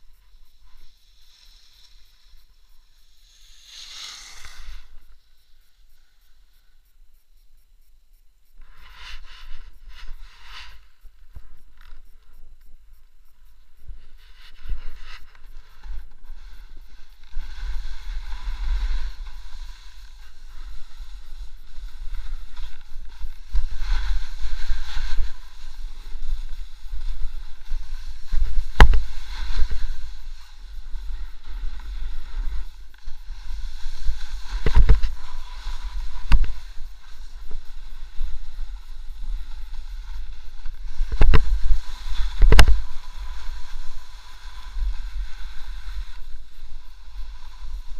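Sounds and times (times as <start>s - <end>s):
skis scraping over crusty snow: 0.0s - 5.2s, 8.7s - 12.1s, 14.0s - 47.9s
wind rumbling on microphone: 8.4s - 47.9s.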